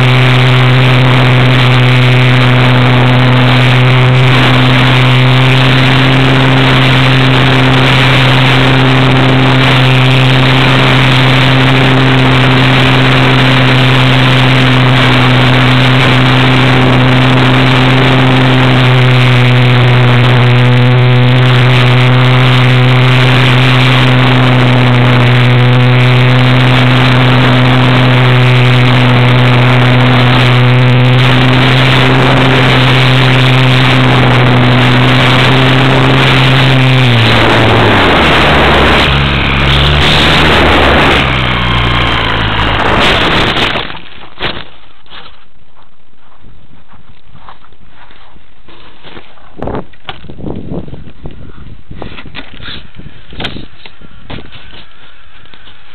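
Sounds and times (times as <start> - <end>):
electric model plane motor drone: 0.0 - 43.9.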